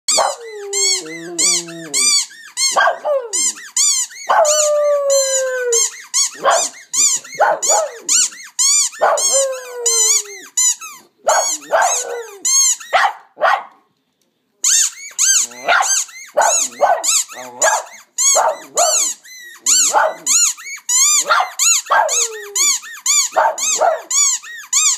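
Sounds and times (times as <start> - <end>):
dog yipping and barking: 0.1 - 13.8, 14.8 - 24.9
dog howling: 0.2 - 2.2, 4.3 - 8.2, 9.0 - 10.5, 21.2 - 22.8.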